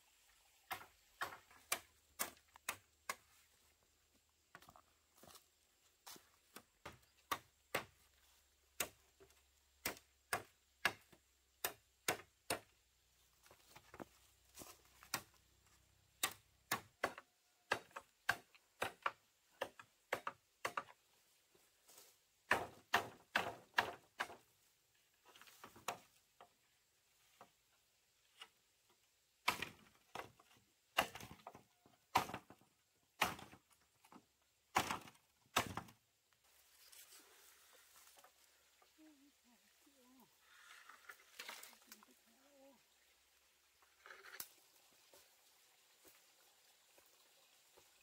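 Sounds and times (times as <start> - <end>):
machete striking bamboo: 0.7 - 3.3, 9.8 - 12.7, 16.2 - 20.9, 22.5 - 24.4, 29.4 - 29.9, 31.0 - 31.4, 32.1 - 32.5, 33.2 - 33.6, 34.7 - 36.0.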